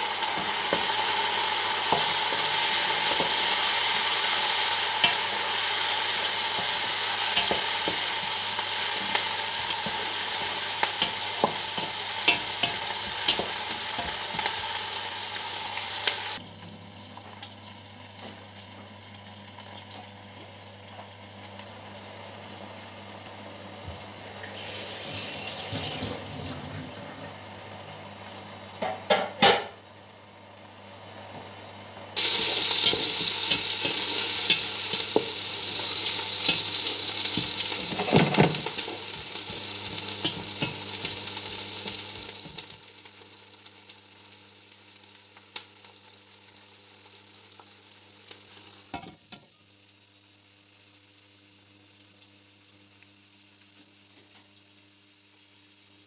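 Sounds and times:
onion sizzling in hot oil: 0.0s - 56.0s.

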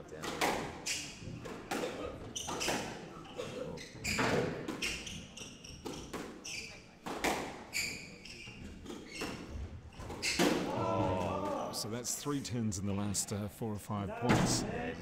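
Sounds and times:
squash ball hitting rackets and walls: 0.1s - 3.2s, 4.0s - 11.6s
shoes squeaking on wooden floor: 0.8s - 10.6s.

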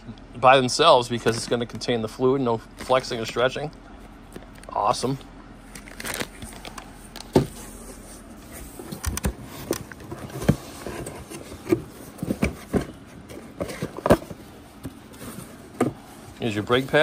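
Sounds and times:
cardboard box handling: 6.0s - 17.0s
knocks scrapes and rustles: 7.3s - 17.0s.

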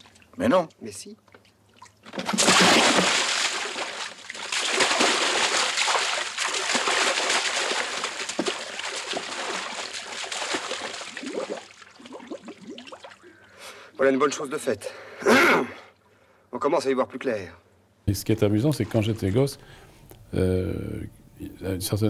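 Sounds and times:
water splashing and sloshing: 0.0s - 0.4s, 1.2s - 13.6s.

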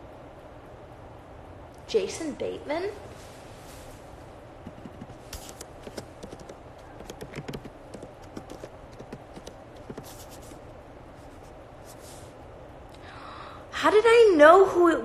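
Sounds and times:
faint steady hiss: 0.0s - 15.0s
fingers tapping touchscreen: 4.6s - 10.6s.

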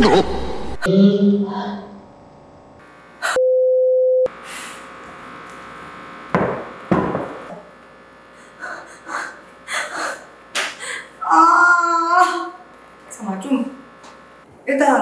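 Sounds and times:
low hum: 0.0s - 14.5s
steady pure tone beep: 3.2s - 4.4s
dough thumping on counter: 6.4s - 7.4s.

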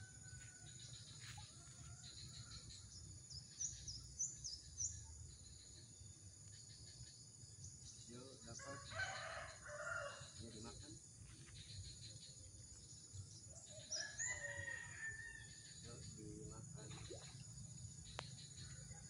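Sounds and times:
distant rooster crowing: 8.6s - 10.2s, 13.9s - 15.5s.

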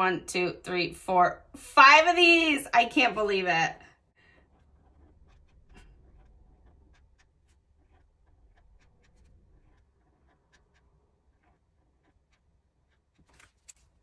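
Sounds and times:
marker scratching on paper: 4.2s - 14.0s.

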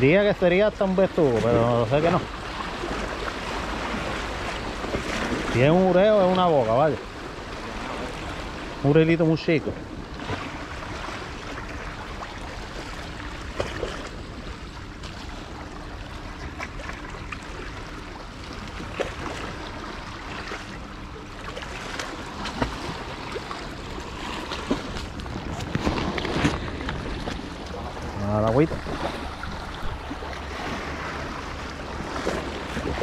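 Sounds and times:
water lapping against rocks: 10.1s - 33.0s.

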